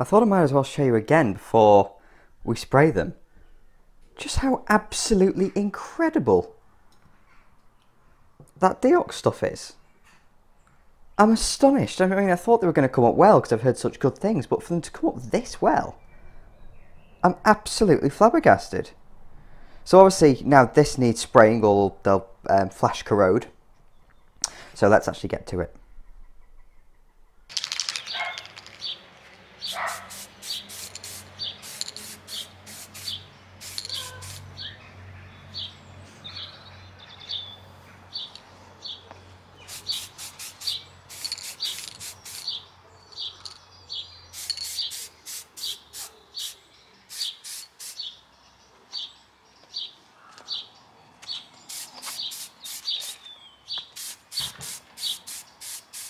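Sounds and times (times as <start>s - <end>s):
bird chirping: 15.2s - 17.4s, 23.7s - 24.6s, 25.6s - 56.0s
spray can bursts: 29.6s - 34.5s, 39.6s - 42.6s, 44.3s - 48.1s, 51.7s - 56.0s.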